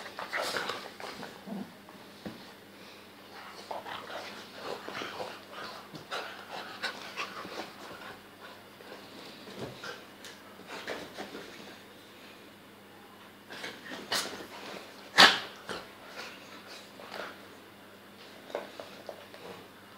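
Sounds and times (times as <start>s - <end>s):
dogs panting and snuffling: 3.3s - 11.8s.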